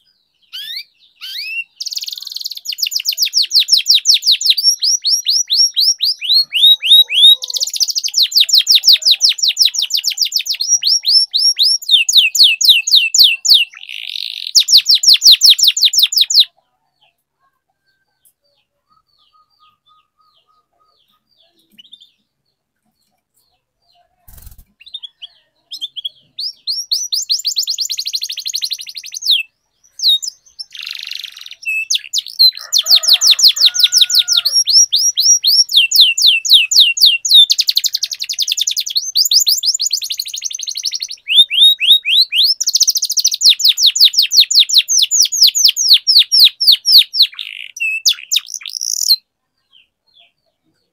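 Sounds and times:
canary singing high trills: 0.0 - 16.5, 18.2 - 22.3, 23.6 - 49.2.

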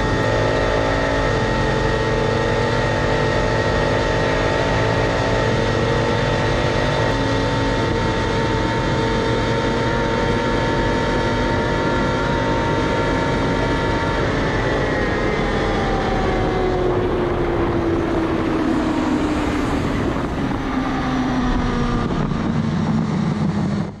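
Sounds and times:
motorcycle engine winding down: 0.0 - 24.0
wind rush: 12.6 - 24.0.

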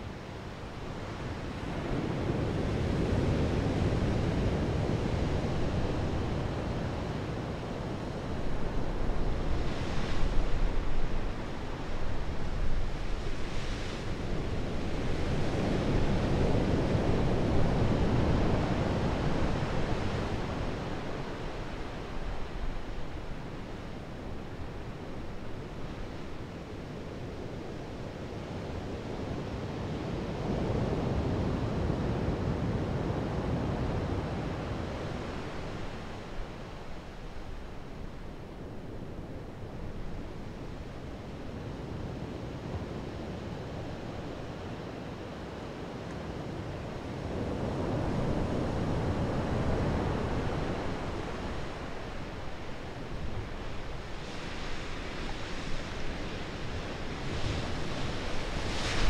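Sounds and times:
ocean surf breaking over rocks: 47.6 - 59.0.

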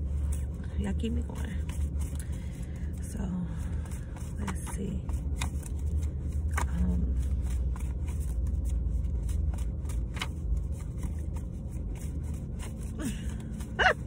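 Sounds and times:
cards being shuffled: 0.0 - 3.0, 3.6 - 14.0
low rumble inside a car: 0.0 - 14.0.

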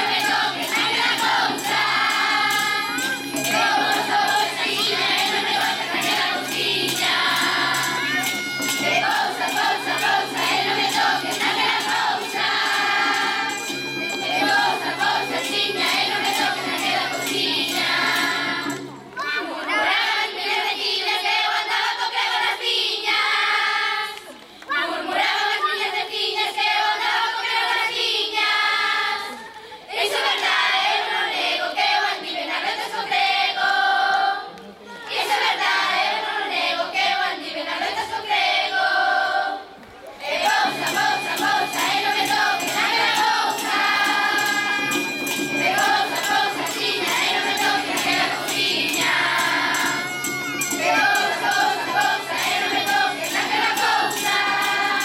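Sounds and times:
tambourines jingling: 0.0 - 19.0, 40.3 - 55.0
rhythmic beat: 0.0 - 19.2, 40.3 - 55.0
children's choir singing: 0.0 - 55.0.

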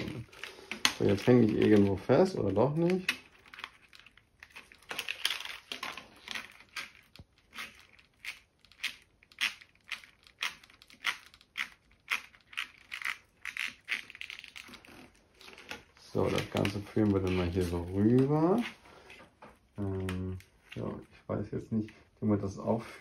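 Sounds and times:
cable rustling through plastic hose: 0.0 - 23.0.

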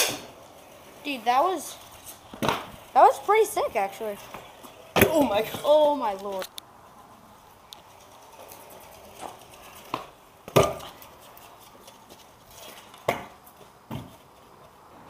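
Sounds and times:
scooter wheels rolling on concrete: 0.0 - 15.0
scooter deck clacking on ground: 1.7 - 6.5, 7.8 - 14.4.

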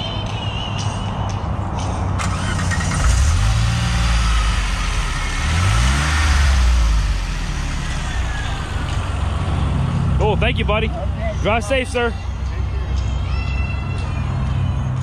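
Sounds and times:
engine revving: 2.2 - 10.9
car engine idling: 2.2 - 13.3.

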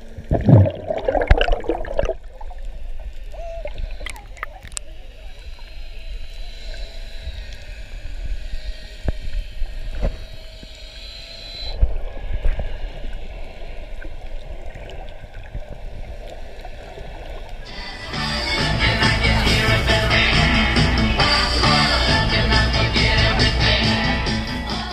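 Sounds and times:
muffled underwater water wash: 0.0 - 10.1, 11.8 - 24.7
music: 17.7 - 24.9.

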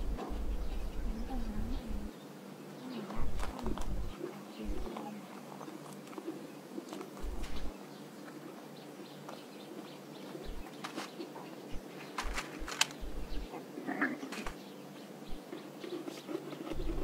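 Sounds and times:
faint bird calls: 0.0 - 17.0
low steady hum: 0.0 - 17.0
small clicks and rustles: 3.1 - 8.5, 9.1 - 13.4, 14.2 - 14.7.

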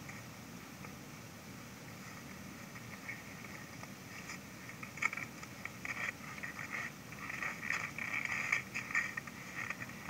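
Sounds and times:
underwater crackling and clicking: 3.0 - 10.0.

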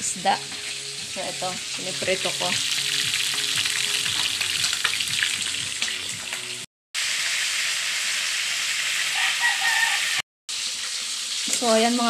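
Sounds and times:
fish sizzling in hot oil: 0.0 - 12.0.

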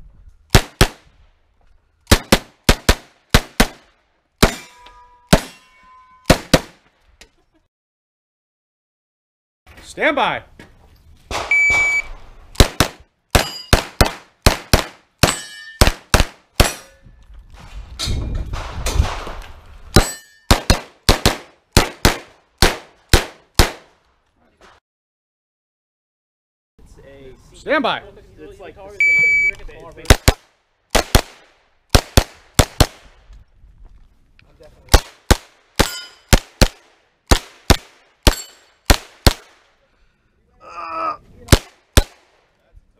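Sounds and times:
carbine gunshots: 0.5 - 1.0, 2.1 - 4.7, 12.6 - 16.8, 20.0 - 23.9, 30.0 - 33.1, 34.9 - 39.7
metallic ring: 4.5 - 6.3, 13.4 - 13.7, 15.3 - 15.8, 20.0 - 20.5, 35.8 - 36.3, 38.3 - 38.8
shot timer beep: 11.5 - 12.1, 29.0 - 29.6.

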